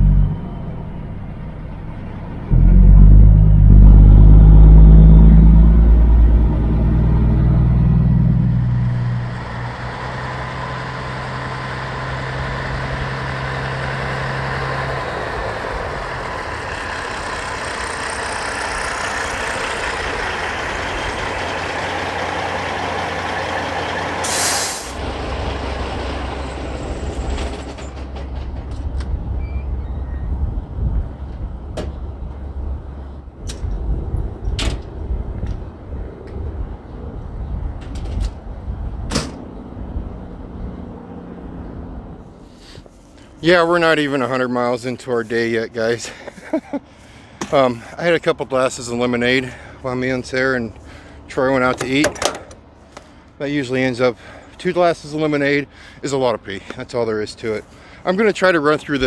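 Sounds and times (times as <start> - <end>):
truck diesel engine: 0.0 - 34.3
air brake burst: 24.2 - 25.0
air hiss: 24.2 - 25.0.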